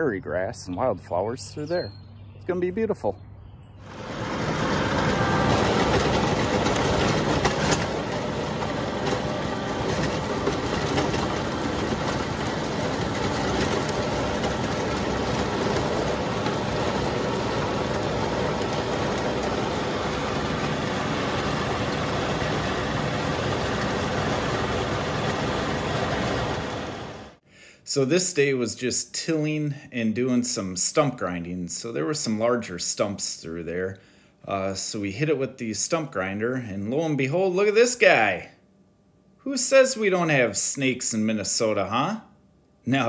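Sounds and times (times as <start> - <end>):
rotary tiller working ground: 3.8 - 27.4
tractor diesel engine running: 3.8 - 27.4.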